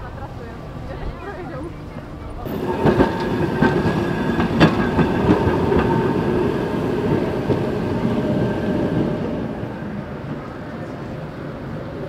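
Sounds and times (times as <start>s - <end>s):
tram wheels rolling on rails: 1.8s - 12.0s.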